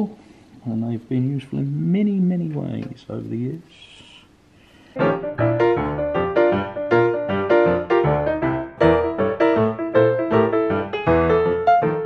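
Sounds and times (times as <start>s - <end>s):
piano music: 5.0s - 12.0s.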